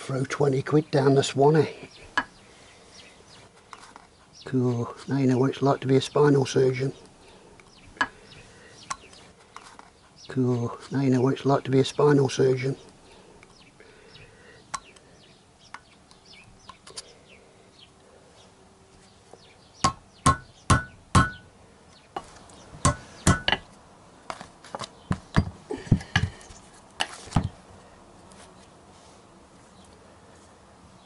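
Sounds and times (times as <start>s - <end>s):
faint ticks and scrapes: 3.3s - 4.4s, 8.8s - 10.2s
hammer blows on metal: 19.8s - 21.5s.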